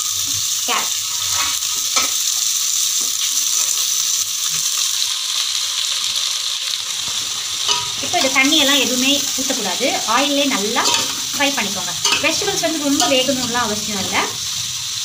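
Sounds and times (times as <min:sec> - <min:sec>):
vegetables sizzling in oil: 0:00.0 - 0:15.0.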